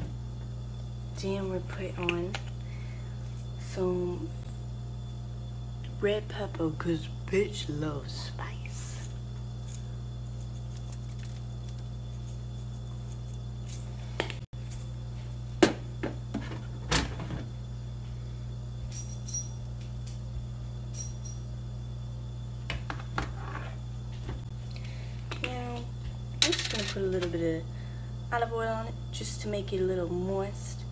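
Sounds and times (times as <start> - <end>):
steady low hum: 0.0 - 30.9.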